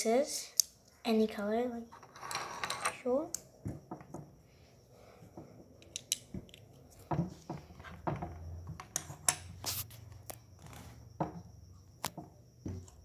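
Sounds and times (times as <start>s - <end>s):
plastic bricks clicking on wooden table: 5.8s - 6.7s.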